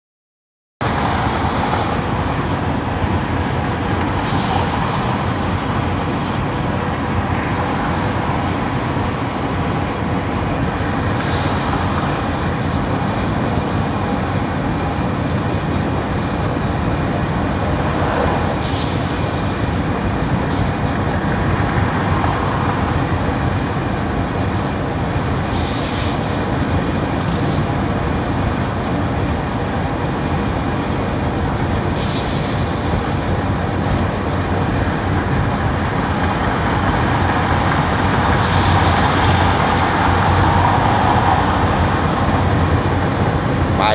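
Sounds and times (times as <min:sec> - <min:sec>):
truck engine and road noise: 0:00.8 - 0:43.9
brief hissing rush: 0:04.2 - 0:05.0, 0:11.2 - 0:11.8, 0:18.6 - 0:19.3, 0:25.5 - 0:26.2, 0:32.0 - 0:32.6.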